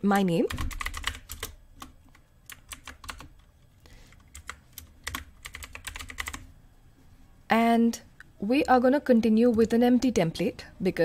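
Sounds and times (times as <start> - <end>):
typing on computer keyboard: 0.1 - 6.5.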